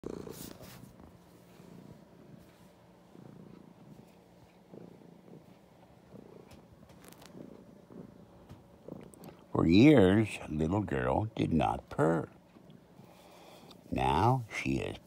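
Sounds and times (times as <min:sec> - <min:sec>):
cat purring: 0:00.0 - 0:15.0
fur rubbing against phone: 0:00.2 - 0:01.0.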